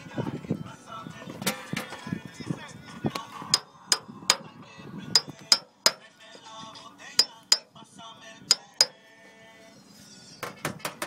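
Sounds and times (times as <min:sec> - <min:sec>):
hammer tapping sheet metal: 0:03.6 - 0:04.5, 0:05.2 - 0:06.0, 0:07.2 - 0:07.7, 0:08.5 - 0:09.0, 0:10.4 - 0:11.0.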